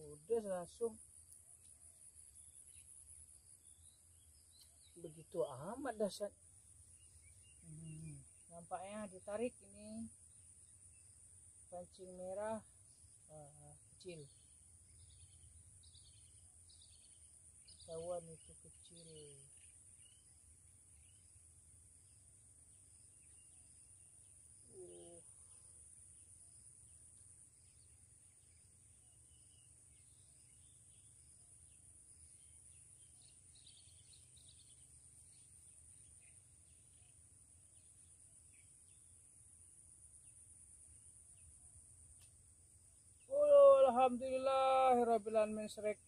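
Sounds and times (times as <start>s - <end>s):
insect drone: 0.0s - 46.0s
bird chirps: 27.2s - 39.2s.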